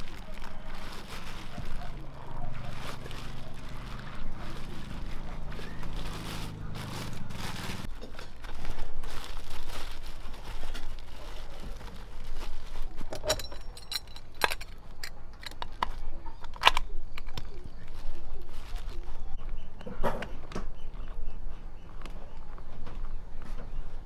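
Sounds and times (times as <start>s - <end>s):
plastic bag crinkling: 0.0s - 19.4s
metal clicks and clinks: 13.1s - 17.4s.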